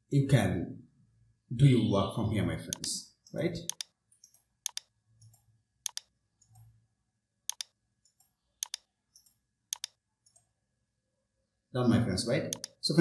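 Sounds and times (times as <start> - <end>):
computer mouse button clicking: 3.7 - 3.9, 4.6 - 4.9, 5.8 - 6.7, 7.5 - 7.8, 8.6 - 8.9, 9.7 - 10.4, 12.5 - 12.8.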